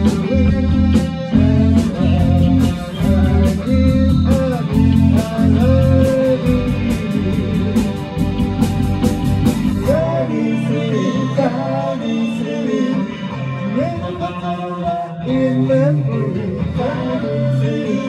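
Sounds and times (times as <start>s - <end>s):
low bass line: 0.0s - 11.6s
bending melody line: 0.0s - 17.4s.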